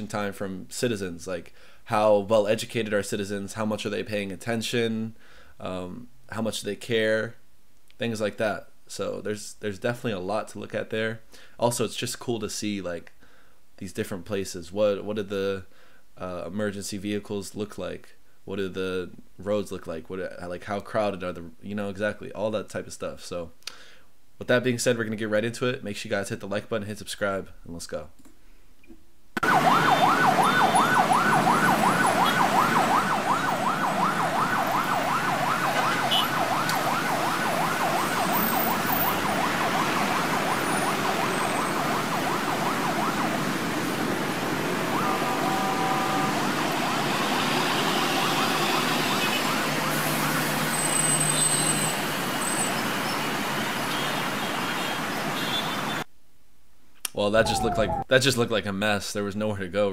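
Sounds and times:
ambulance siren yelping: 29.4s - 53.2s, 57.3s - 58.1s
heavy road traffic: 29.4s - 56.1s, 57.4s - 58.1s.

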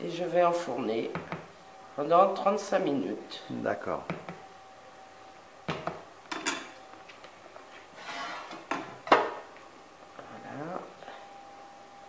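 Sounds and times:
spatula scraping a bowl: 8.0s - 8.7s.

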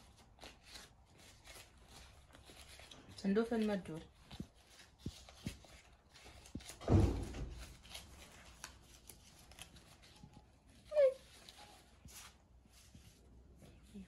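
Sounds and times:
paper bills rustling and crinkling: 0.0s - 14.0s
thump: 6.8s - 7.7s.

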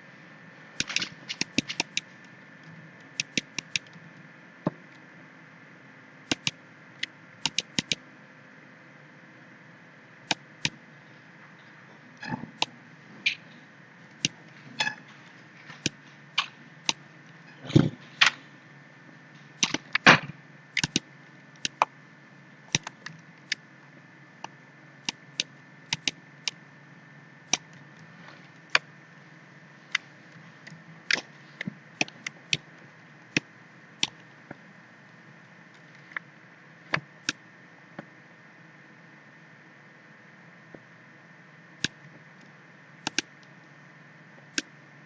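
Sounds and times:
faint steady hum: 0.0s - 45.0s
computer mouse clicking: 0.8s - 2.1s, 3.0s - 4.0s, 6.3s - 8.0s, 14.1s - 15.0s, 15.8s - 17.0s, 19.6s - 19.8s, 20.7s - 21.9s, 22.7s - 23.6s, 24.4s - 26.6s, 27.5s - 27.8s, 30.6s - 32.7s, 43.0s - 43.5s, 44.5s - 44.7s.

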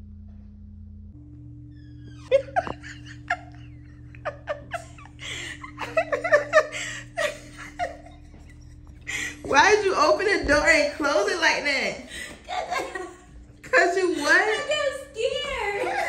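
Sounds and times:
faint background music: 1.1s - 16.0s
person laughing: 2.3s - 9.8s, 12.1s - 14.9s, 15.6s - 16.0s.

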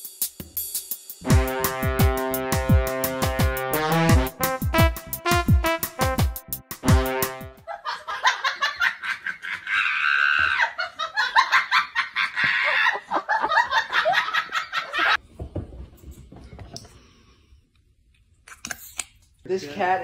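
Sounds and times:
person laughing hard: 7.6s - 15.2s.

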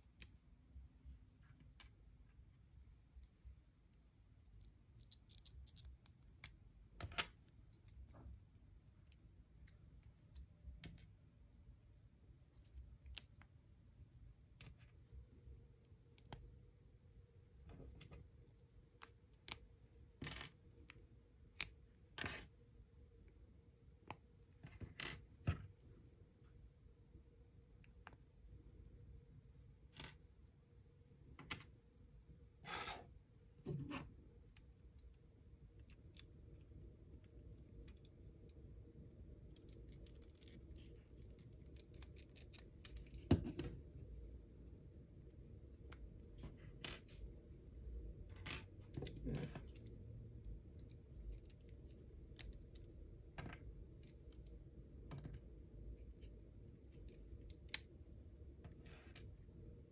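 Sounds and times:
short scrapes on wooden table: 32.6s - 33.1s.

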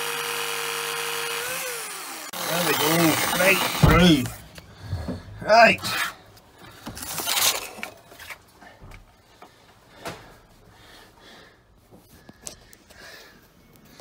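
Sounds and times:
saw scraping rustle: 2.3s - 8.5s.

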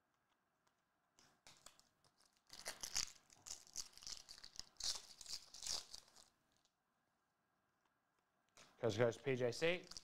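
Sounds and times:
foil wrapper crinkling: 1.4s - 6.7s, 9.8s - 10.0s.

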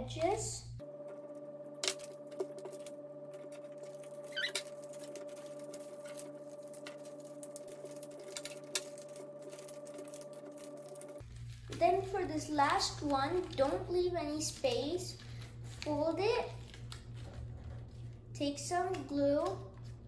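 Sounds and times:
steady hum: 0.0s - 20.0s
brief squeak: 4.2s - 4.7s.

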